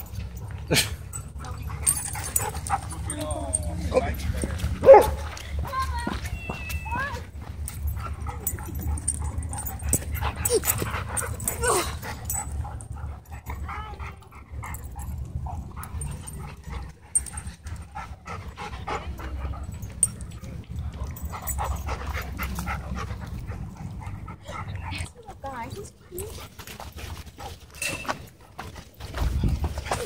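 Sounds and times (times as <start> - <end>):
dogs whimpering and whining: 0.0 - 5.0, 6.3 - 17.5.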